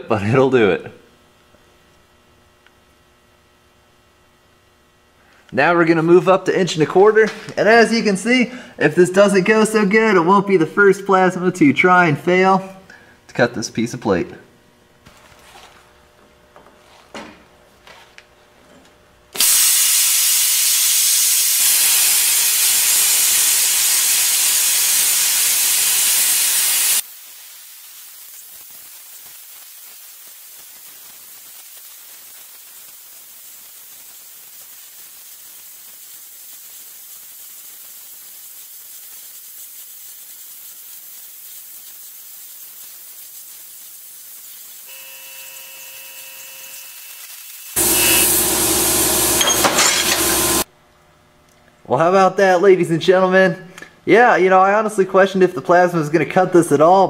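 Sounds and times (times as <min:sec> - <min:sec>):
plasma cutter arc hissing: 0:19.4 - 0:50.7.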